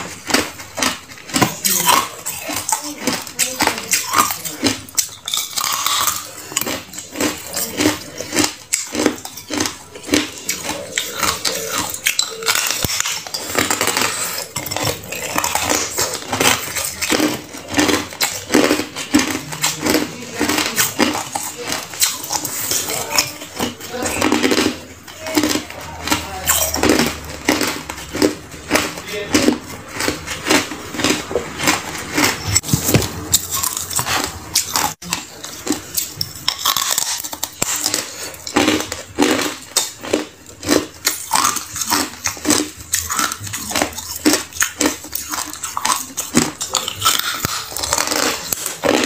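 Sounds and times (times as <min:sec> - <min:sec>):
ice being chewed and crunched: 0:00.0 - 0:49.0.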